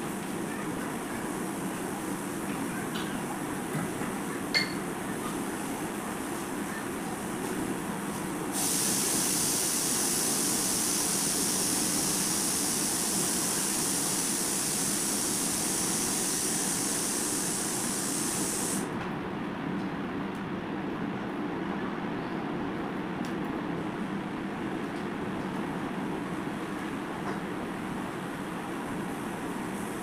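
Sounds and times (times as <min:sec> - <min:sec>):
high-pitched hiss: 0:08.5 - 0:18.9.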